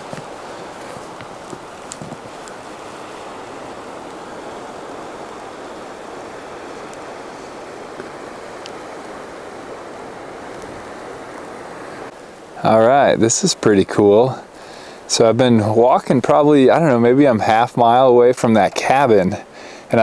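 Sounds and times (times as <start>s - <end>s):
footsteps crunching in snow: 0.0s - 9.3s
creek water flowing: 0.0s - 20.0s.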